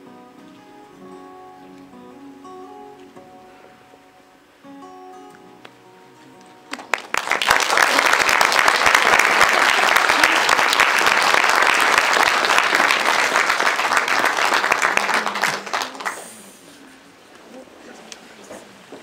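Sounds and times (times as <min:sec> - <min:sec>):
audience applauding: 0:06.7 - 0:16.7.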